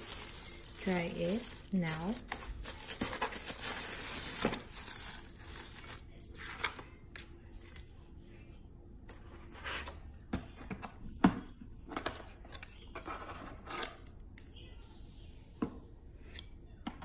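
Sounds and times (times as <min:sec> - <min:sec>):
plastic packaging rustle: 0:00.0 - 0:07.0.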